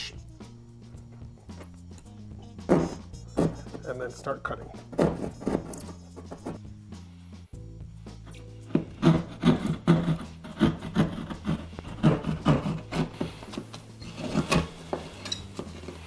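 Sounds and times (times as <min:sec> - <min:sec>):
background music: 0:00.0 - 0:16.0
drywall saw rasping: 0:08.7 - 0:16.0.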